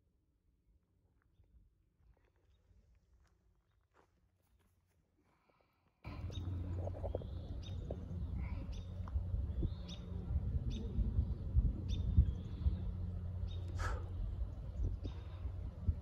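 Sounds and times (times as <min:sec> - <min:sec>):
wind rumbling on microphone: 0:06.1 - 0:16.0.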